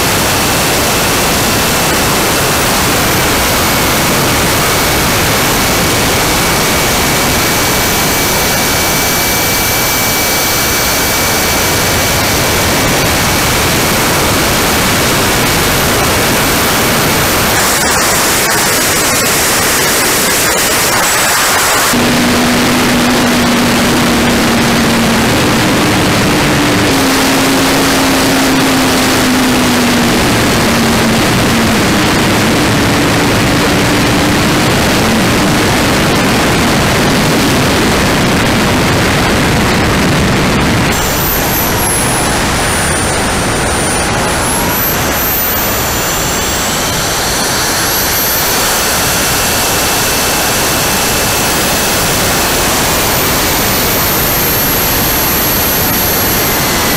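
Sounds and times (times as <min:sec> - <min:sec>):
high gliding whines: 0:00.0 - 0:56.9
model jet engine rushing: 0:00.0 - 0:56.9
low hum stepping in pitch: 0:40.0 - 0:56.9.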